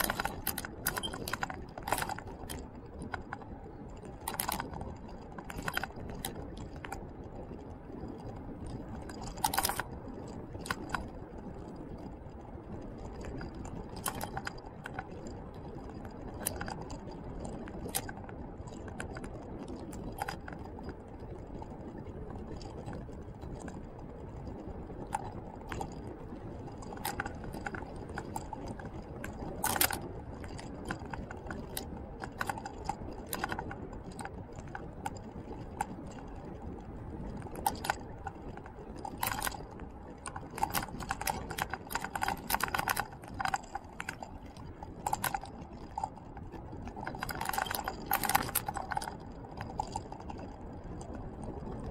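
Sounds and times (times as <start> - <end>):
rattling clicks and jangles: 0.0 - 7.1, 8.0 - 12.1, 13.0 - 21.8, 22.4 - 51.9
faint high steady tone: 0.0 - 11.1
tyres rolling over asphalt: 0.0 - 51.9.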